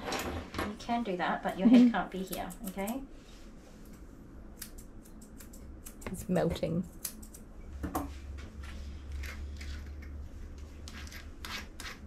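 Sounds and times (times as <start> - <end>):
scissors snipping fur: 2.2 - 3.0, 4.5 - 7.5.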